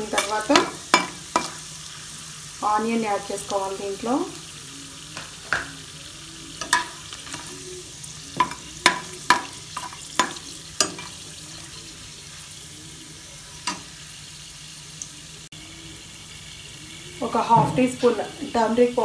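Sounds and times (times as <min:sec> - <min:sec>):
spices frying in oil: 0:00.0 - 0:19.0
metal spatula scraping pot: 0:06.6 - 0:12.0.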